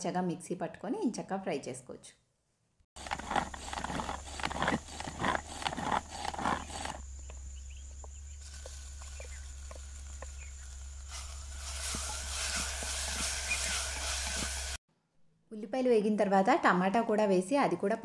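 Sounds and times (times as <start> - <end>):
spoon scraping plastic bowl: 3.0 - 7.0.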